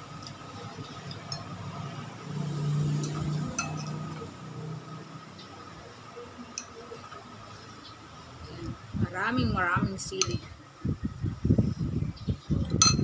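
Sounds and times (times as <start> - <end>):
low steady hum: 0.0 - 13.0
metal spoon clinking eggshell: 3.0 - 4.0.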